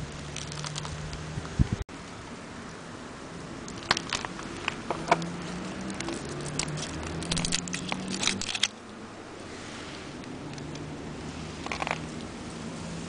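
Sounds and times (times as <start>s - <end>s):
wrapper crinkling and crackling: 0.0s - 1.3s, 3.6s - 8.8s, 11.5s - 12.3s.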